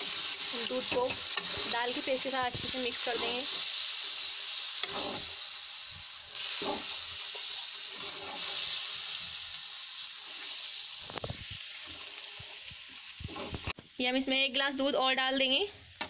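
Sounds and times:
ladle scraping pan: 0.0s - 3.7s, 4.8s - 5.4s, 6.4s - 8.8s
milk sizzling and hissing: 0.0s - 13.8s.

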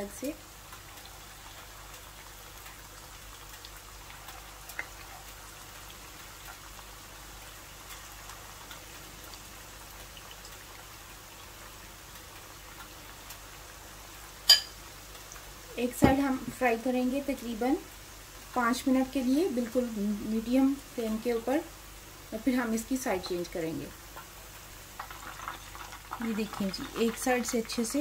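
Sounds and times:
oil sizzling while deep-frying: 0.0s - 28.0s.

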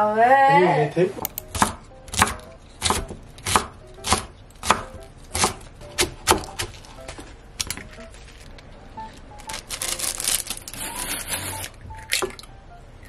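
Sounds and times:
knife chopping on wooden board: 1.4s - 6.7s.

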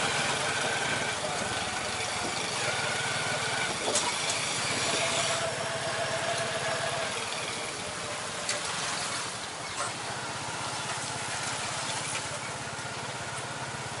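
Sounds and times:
road noise: 0.0s - 14.0s
small motorcycle engine running: 0.0s - 14.0s.

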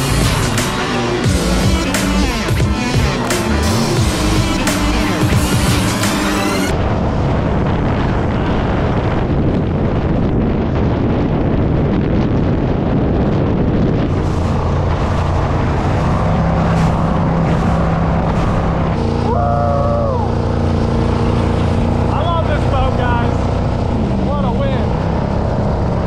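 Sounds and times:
boat engine running hard: 0.0s - 26.0s
wind on microphone: 6.7s - 26.0s.

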